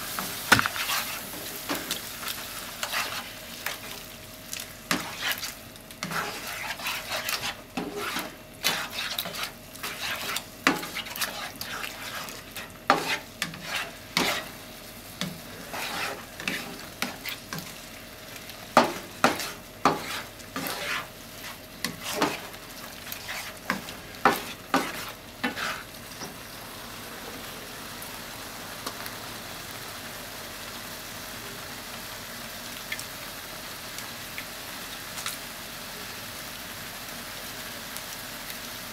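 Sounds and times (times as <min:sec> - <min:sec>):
food sizzling: 0:00.0 - 0:38.9
spatula scraping frying pan: 0:00.1 - 0:04.0, 0:04.9 - 0:17.8, 0:18.7 - 0:26.0.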